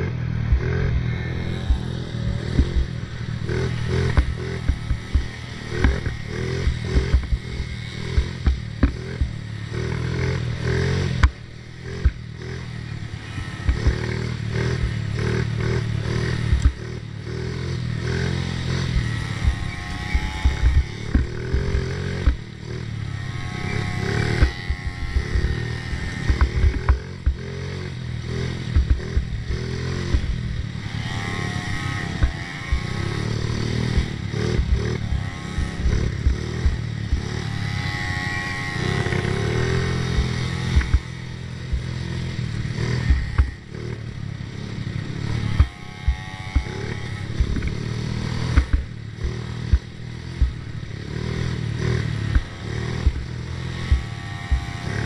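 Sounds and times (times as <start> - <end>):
knocks and clatter of quad: 0.0 - 44.3, 44.9 - 55.0
small atv engine revving: 0.0 - 55.0.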